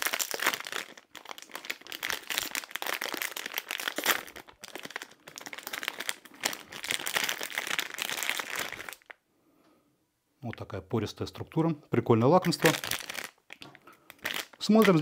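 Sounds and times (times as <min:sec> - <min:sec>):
plastic wrapper crinkling: 0:00.0 - 0:09.2, 0:12.4 - 0:15.0.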